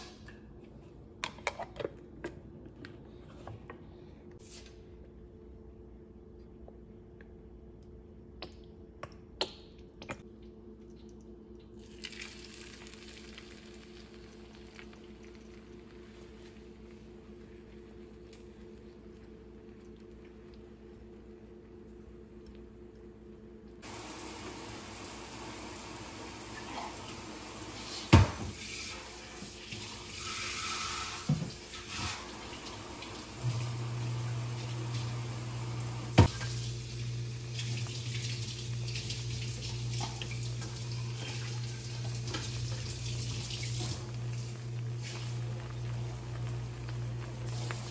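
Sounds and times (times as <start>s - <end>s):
steady low hum: 1.9s - 29.4s, 32.8s - 47.9s
eggs sizzling in frying pan: 11.9s - 16.4s, 23.8s - 47.9s.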